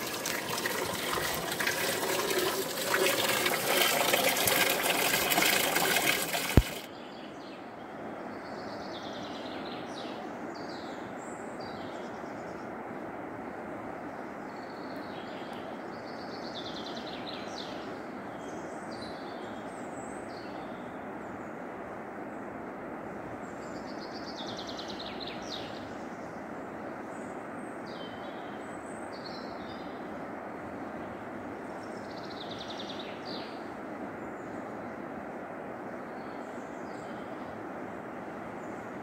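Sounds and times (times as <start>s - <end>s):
songbirds singing trills: 31.2s - 35.0s.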